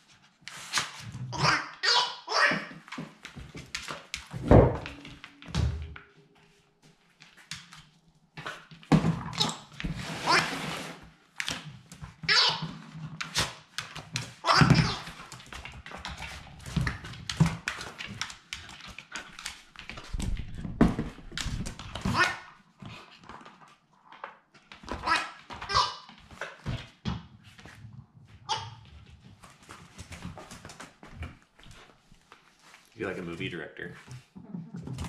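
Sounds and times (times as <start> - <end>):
ball and paws knocking on floor: 2.7 - 6.0, 11.5 - 22.3
dog yipping: 12.3 - 12.7, 28.5 - 28.9.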